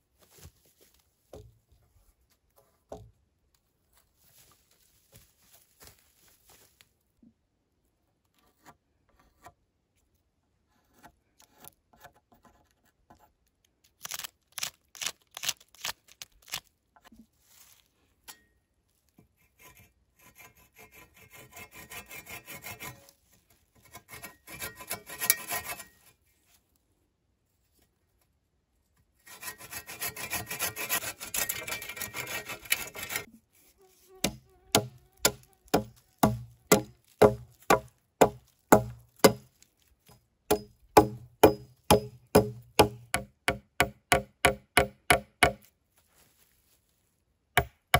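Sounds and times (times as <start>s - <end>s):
hand saw cutting wood: 19.4s - 23.2s, 23.8s - 26.0s, 29.2s - 33.3s, 34.2s - 39.5s, 40.5s - 45.6s
sharp knocks: 34.2s - 39.4s, 40.5s - 45.6s.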